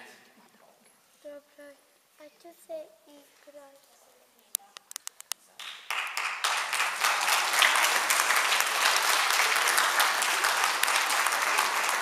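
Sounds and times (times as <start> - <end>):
children applauding: 5.6 - 12.0.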